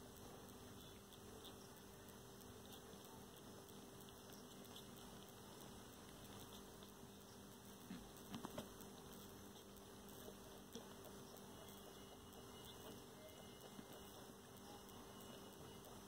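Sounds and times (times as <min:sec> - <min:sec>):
faint clicks and rustles: 0:00.0 - 0:16.0.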